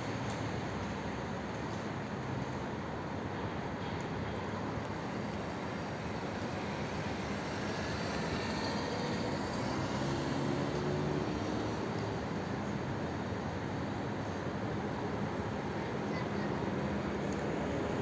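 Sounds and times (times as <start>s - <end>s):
street traffic rumble: 0.0s - 18.0s
vehicle engine hum: 4.1s - 18.0s.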